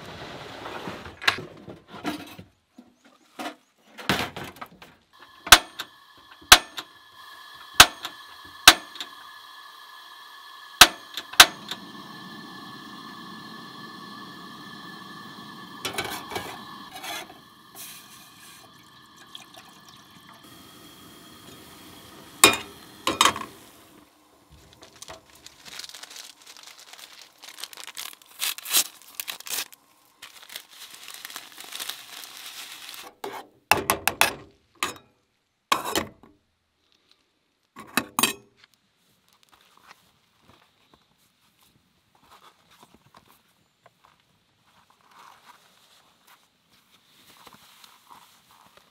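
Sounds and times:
water pouring: 5.2s - 28.3s
metal pot clinking on grate: 22.4s - 23.5s
paper packet crinkling and tearing: 24.5s - 33.2s.

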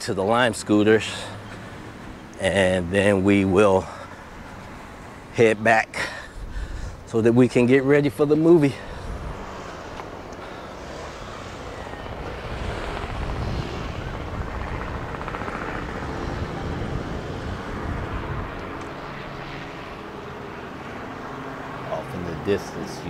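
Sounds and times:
helicopter flying past: 0.0s - 23.0s.

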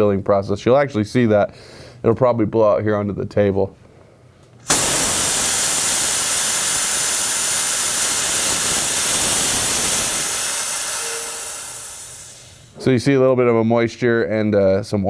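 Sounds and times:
compressed air hissing from valve: 4.6s - 12.8s.

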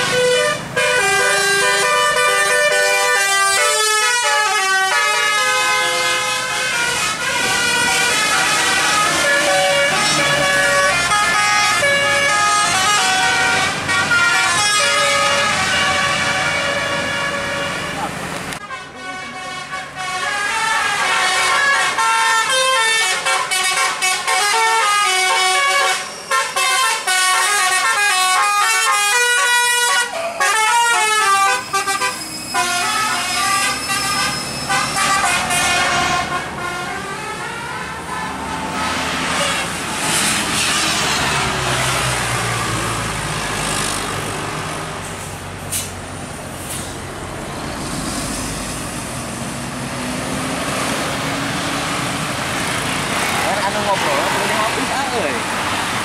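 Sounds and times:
musical bus horn tune: 0.0s - 43.1s
bus engine passing: 0.0s - 56.0s.

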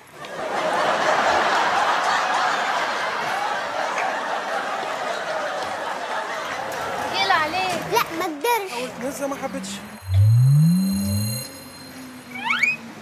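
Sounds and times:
group of people laughing: 0.0s - 7.1s.

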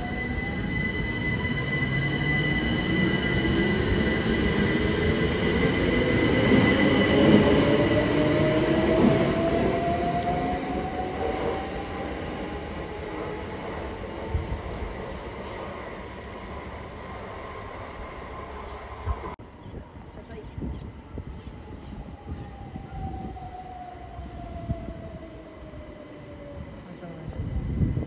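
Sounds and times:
electric train whine rising: 0.0s - 19.4s.

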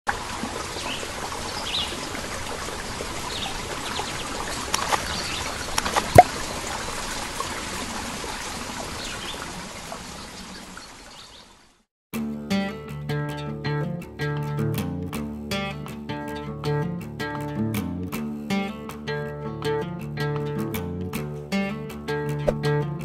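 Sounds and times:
running trickling water: 0.1s - 11.8s.

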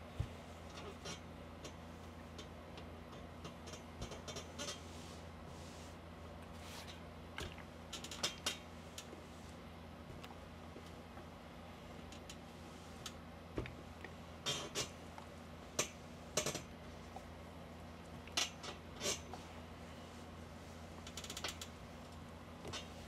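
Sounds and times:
clothes and iron swishes and clicks: 0.0s - 11.4s, 18.3s - 23.0s
steady low hum: 0.0s - 23.0s.

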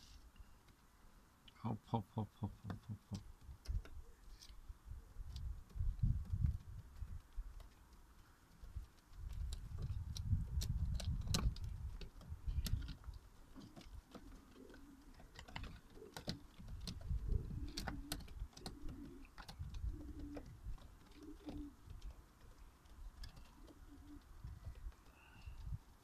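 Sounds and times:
pigeons cooing: 12.2s - 25.7s.

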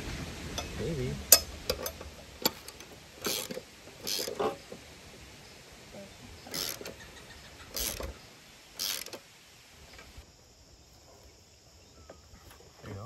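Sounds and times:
ratchet wrench clicking: 1.3s - 4.6s, 6.5s - 7.0s, 7.8s - 8.1s, 8.8s - 9.2s.

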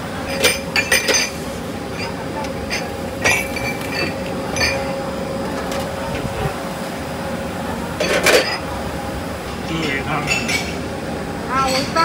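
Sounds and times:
steady machine hum: 0.0s - 12.0s
porcelain bowls clinking: 0.3s - 1.4s.

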